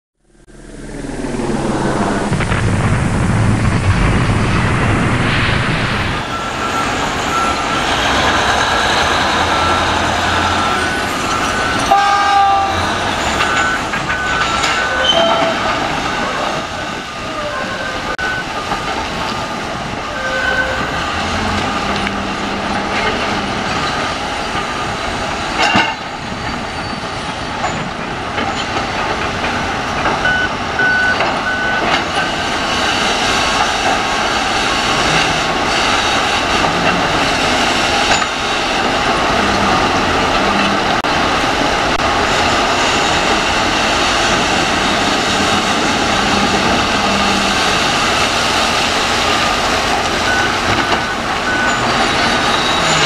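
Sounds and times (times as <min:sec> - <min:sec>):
short low boom: 0:00.4 - 0:06.4
high metal squeals: 0:06.2 - 0:18.2, 0:20.0 - 0:25.0, 0:49.3 - 0:53.0
mining shovel rumbling and grinding: 0:18.3 - 0:26.0, 0:27.2 - 0:53.0.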